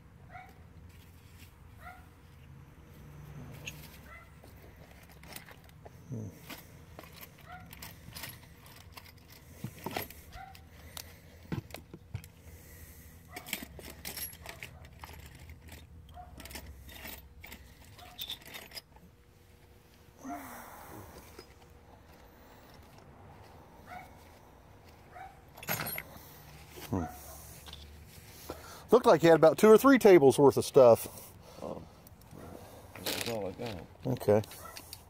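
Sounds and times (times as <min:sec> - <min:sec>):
small metal tools clinking: 0:03.6 - 0:04.2, 0:04.8 - 0:10.7, 0:13.3 - 0:19.1, 0:25.5 - 0:26.8.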